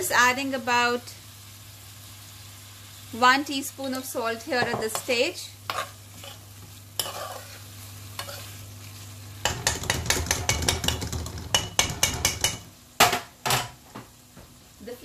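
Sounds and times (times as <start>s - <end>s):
gentle sizzle: 0.0s - 15.0s
metal spoon scraping pan: 4.8s - 8.6s, 9.4s - 12.6s.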